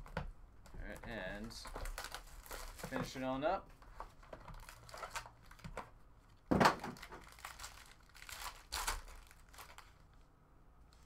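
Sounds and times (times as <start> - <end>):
foil wrapper crinkling: 1.2 - 3.0, 4.5 - 5.7, 6.8 - 10.2.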